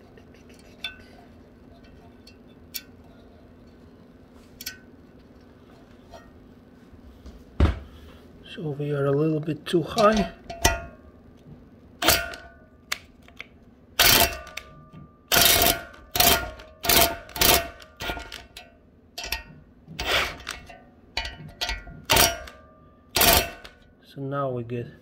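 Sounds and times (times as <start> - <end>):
metal tools tapping and clanking: 0.4 - 3.0, 9.8 - 11.1, 14.0 - 23.9.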